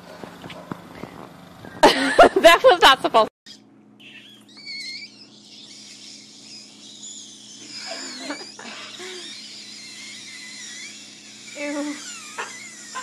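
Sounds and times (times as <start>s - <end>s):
steady low hum: 0.0s - 13.0s
high wavering squeaks of air: 3.5s - 13.0s.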